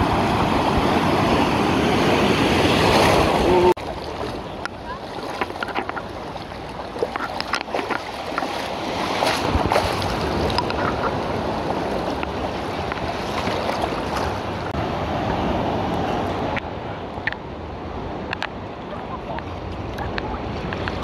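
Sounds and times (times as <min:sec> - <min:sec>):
small waves lapping: 0:00.0 - 0:15.4
seawater sloshing and splashing: 0:02.4 - 0:14.7.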